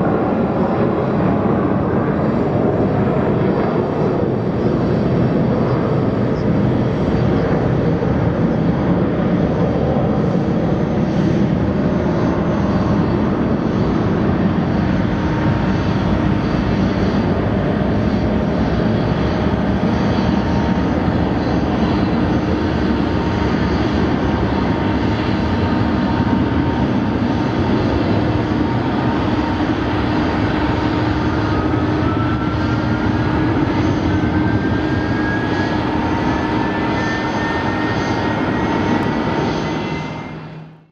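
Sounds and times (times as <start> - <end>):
jet engines flying by: 0.0 - 40.9.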